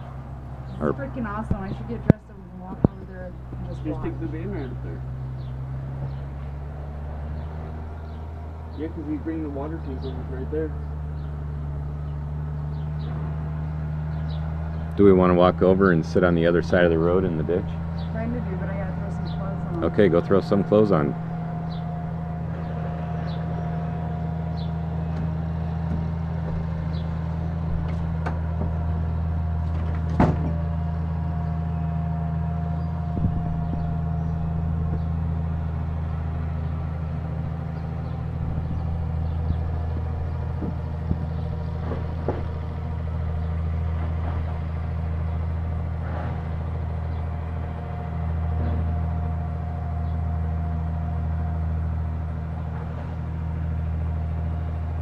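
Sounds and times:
diesel excavator engine running: 0:00.0 - 0:55.0
sharp knocks and cracks: 0:27.7 - 0:28.9, 0:29.6 - 0:30.6, 0:39.9 - 0:42.8.

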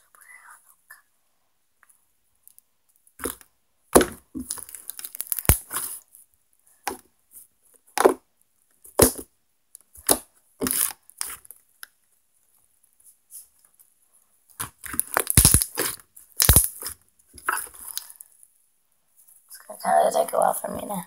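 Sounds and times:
slime snapping and squelching: 0:04.0 - 0:05.9, 0:14.6 - 0:18.1.

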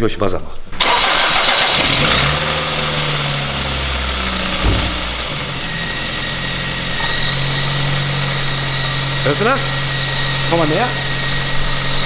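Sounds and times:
car engine running: 0:01.7 - 0:09.2
loud high-pitched whine: 0:02.0 - 0:12.0.

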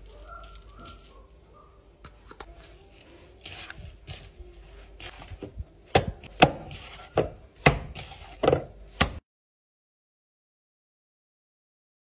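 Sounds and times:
hands squishing minced meat: 0:00.0 - 0:01.5, 0:02.1 - 0:09.2.

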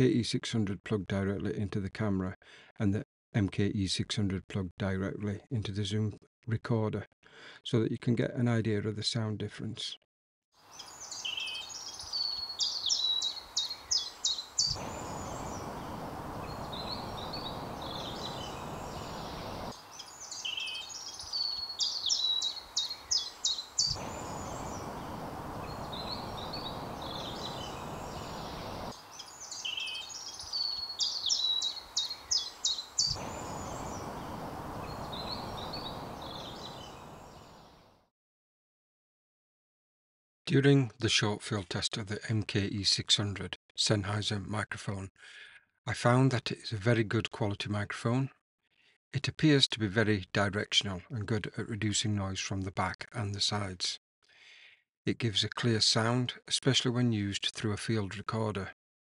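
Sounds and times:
songbird singing: 0:10.6 - 0:37.9
faint bird calls: 0:10.7 - 0:37.7
steady rushing noise: 0:14.8 - 0:19.9, 0:24.0 - 0:29.1, 0:33.1 - 0:37.4.

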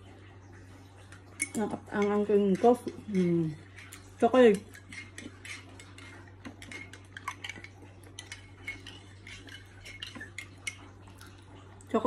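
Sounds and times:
spoon clinking in ceramic mug: 0:01.4 - 0:10.9.

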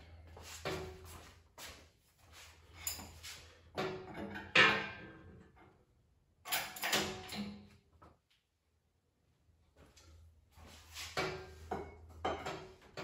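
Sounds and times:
engine hoist metal clanks and rattles: 0:06.5 - 0:07.7.

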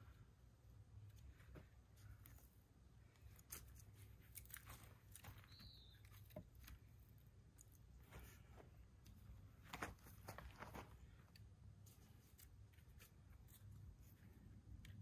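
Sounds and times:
high falling chirp: 0:05.4 - 0:06.2.

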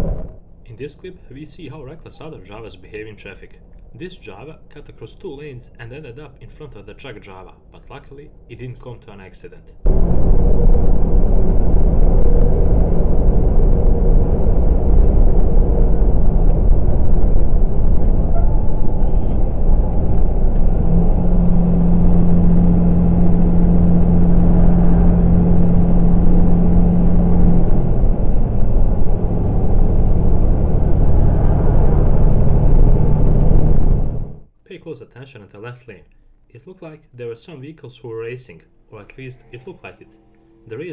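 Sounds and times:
truck engine and road rumble: 0:00.0 - 0:08.9, 0:09.7 - 0:34.5
horn holding a steady note: 0:39.0 - 0:40.9.

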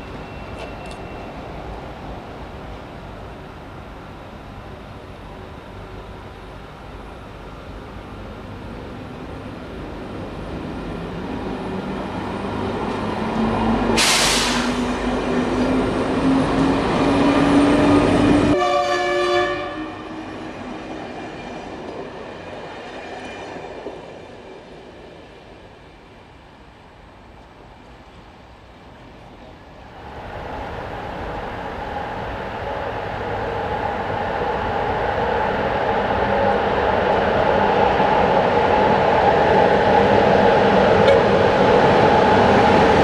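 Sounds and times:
sharp hiss: 0:14.0 - 0:14.9
train horn blast: 0:18.5 - 0:20.2, 0:41.0 - 0:41.3.

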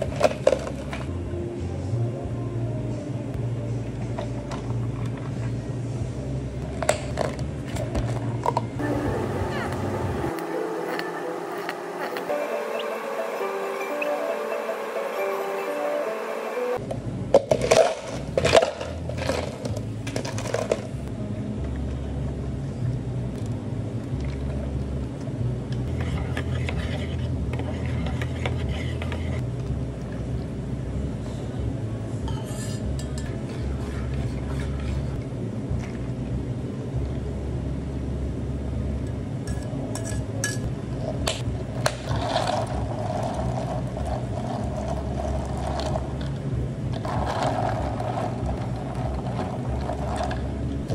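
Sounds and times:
low hum: 0:00.0 - 0:17.4, 0:18.1 - 0:50.9
ice clinking while stirred: 0:42.0 - 0:46.4, 0:47.0 - 0:50.9
ice cubes clattering into cups: 0:47.0 - 0:50.4.

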